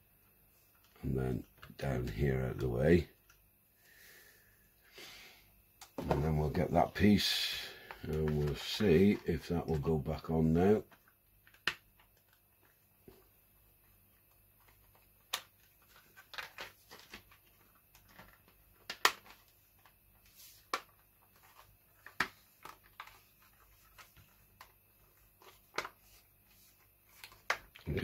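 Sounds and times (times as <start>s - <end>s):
rustling: 6.0s - 28.0s.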